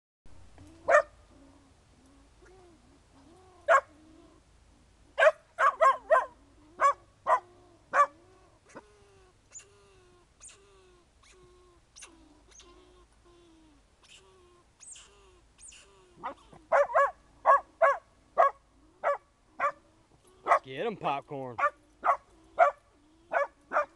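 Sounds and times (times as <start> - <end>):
dog barking: 0.9 - 1.1, 3.7 - 3.9, 5.2 - 8.2, 16.2 - 19.8, 20.4 - 20.6, 21.6 - 23.9
dog whining: 5.2 - 20.6, 21.6 - 23.9.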